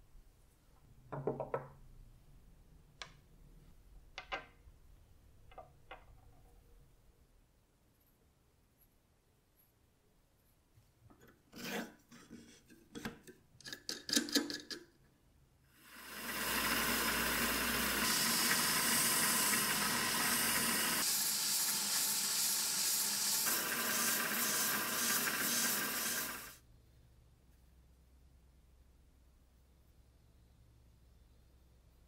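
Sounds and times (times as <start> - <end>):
lathe running: 16.0 - 26.6
sandpaper sanding hiss: 16.4 - 26.6.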